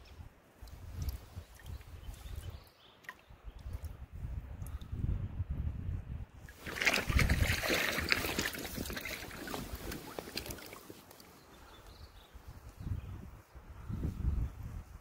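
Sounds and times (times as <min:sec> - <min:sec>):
water splashing with crackling spatters: 0:06.5 - 0:11.4.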